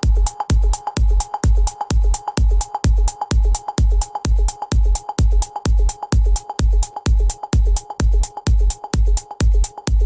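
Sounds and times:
electronic dance music: 0.0s - 10.0s.

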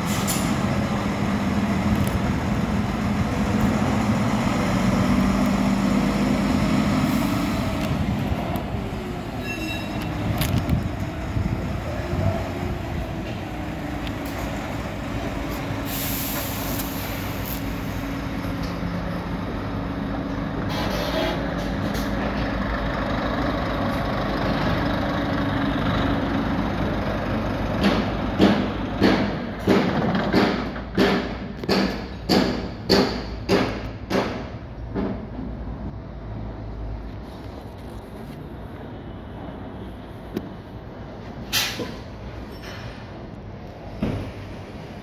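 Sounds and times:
compressed air hiss: 15.8s - 18.0s
diesel truck engine idling: 22.2s - 29.0s.

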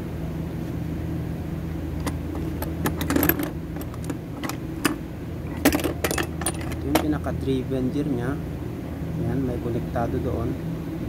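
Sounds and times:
steady low hum: 0.0s - 11.0s
metal parts clinking: 2.0s - 7.2s.

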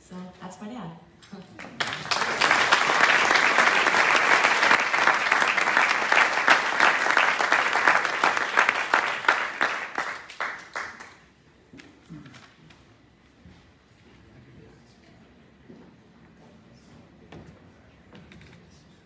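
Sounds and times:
audience clapping: 1.6s - 11.3s.

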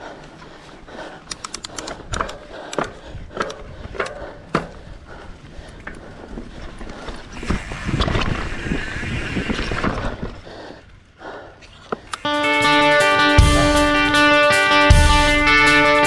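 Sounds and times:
bike clicks and rattles: 0.0s - 8.9s, 11.6s - 12.3s
tyre and wind rush: 1.9s - 11.8s
bike tyres rolling on dirt: 2.0s - 11.1s.

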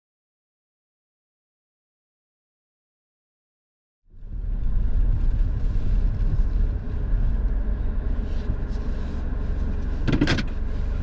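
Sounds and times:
car engine and tyres rumbling: 4.1s - 11.0s.

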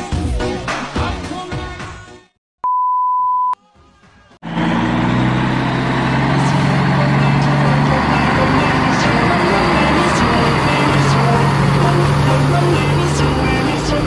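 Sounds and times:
electronic beep: 2.6s - 3.6s
intro music: 6.0s - 14.0s.

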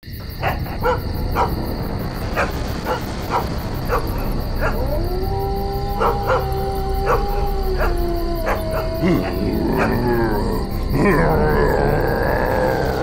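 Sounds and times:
constant low rumble: 0.2s - 13.0s
dog barking: 0.4s - 1.5s, 2.4s - 4.8s, 6.0s - 10.0s
dog howling: 2.3s - 13.0s.

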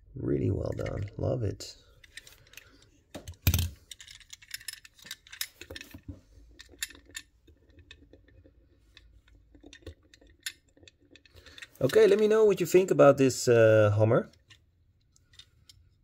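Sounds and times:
metal toy cars clicking and tapping: 0.6s - 1.3s, 2.0s - 12.6s.

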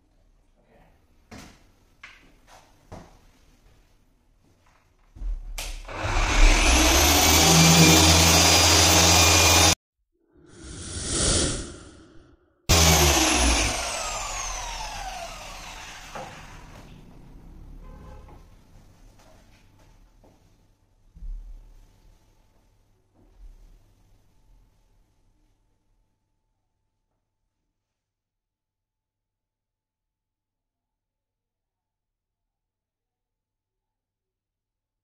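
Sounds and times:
electric polisher whining: 5.9s - 9.8s, 12.7s - 16.9s.

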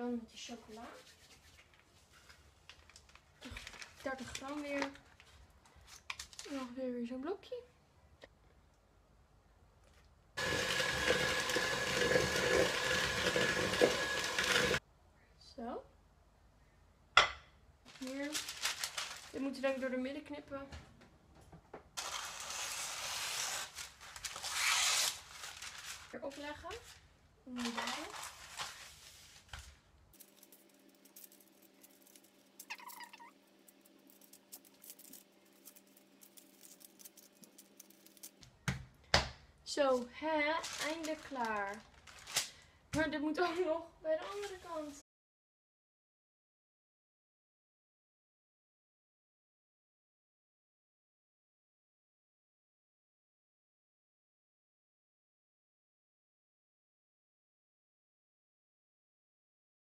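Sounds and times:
electric hand mixer whining: 10.4s - 14.8s
mixer beaters knocking bowl: 10.4s - 14.8s.

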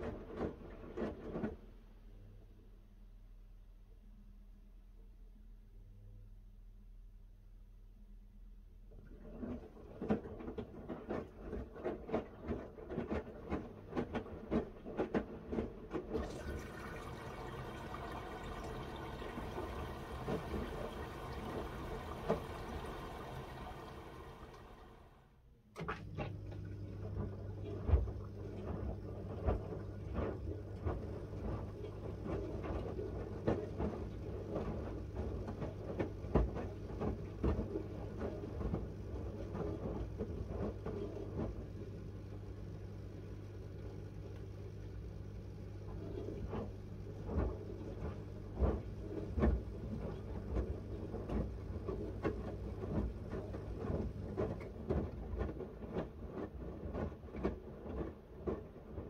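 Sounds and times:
washing machine drum tumbling: 16.0s - 25.2s.

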